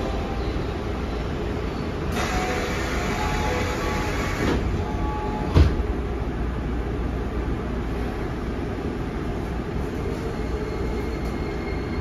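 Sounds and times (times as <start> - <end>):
subway door chime: 0.0 - 6.2, 9.7 - 12.0
stopped train humming: 0.0 - 12.0.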